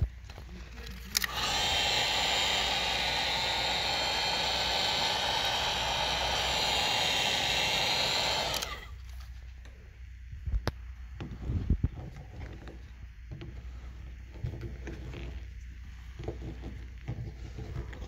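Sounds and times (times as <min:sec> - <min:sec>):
heat gun blowing hot air: 0:01.1 - 0:09.0.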